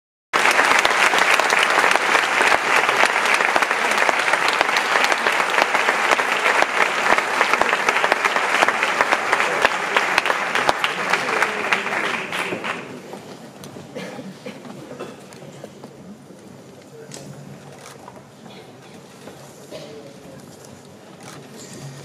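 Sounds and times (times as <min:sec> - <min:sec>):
large audience applauding: 0:00.3 - 0:13.1.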